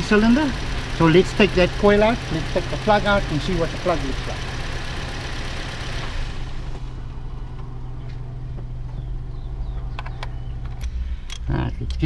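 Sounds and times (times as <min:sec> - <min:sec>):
car engine idling with misfire: 0:00.0 - 0:07.7.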